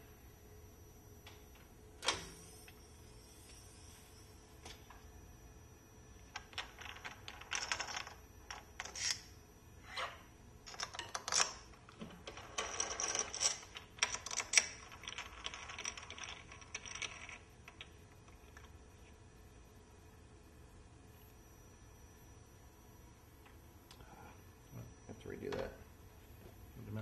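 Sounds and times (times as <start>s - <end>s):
metal parts clinking and scraping: 6.8s - 9.2s.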